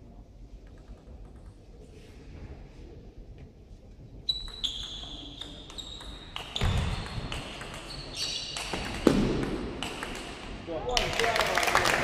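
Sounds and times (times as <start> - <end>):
short high squeaks: 7.9 - 8.6.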